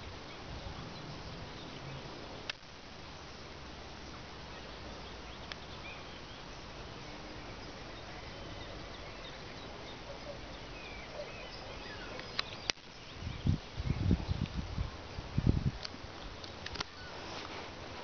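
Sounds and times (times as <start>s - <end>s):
distant birds chirping: 0.0s - 15.3s
clicks: 15.8s - 17.5s.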